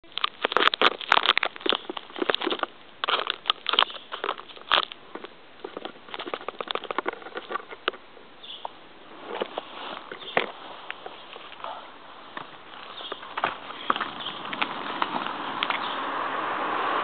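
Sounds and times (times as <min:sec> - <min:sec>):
fingers handling camera: 0:00.1 - 0:08.0.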